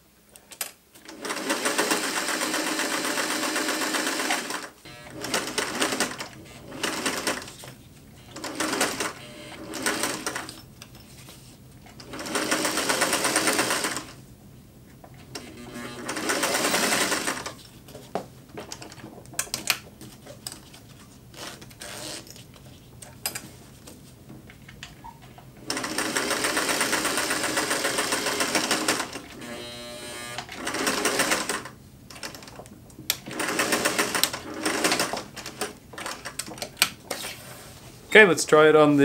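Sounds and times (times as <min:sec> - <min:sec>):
sewing machine stitching: 0:01.0 - 0:07.6, 0:08.2 - 0:10.6, 0:12.0 - 0:14.2, 0:15.3 - 0:17.6, 0:25.6 - 0:32.5, 0:33.2 - 0:36.6.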